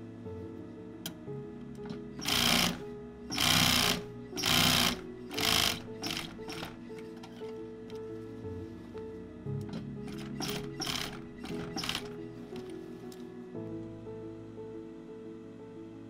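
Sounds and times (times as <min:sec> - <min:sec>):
background music: 0:00.0 - 0:16.0
sewing machine stitching leather: 0:02.2 - 0:07.5, 0:10.0 - 0:12.7.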